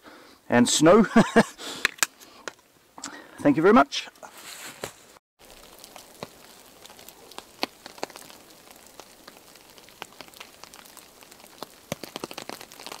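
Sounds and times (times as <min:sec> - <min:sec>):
small ticks of sleet: 0:05.4 - 0:13.0.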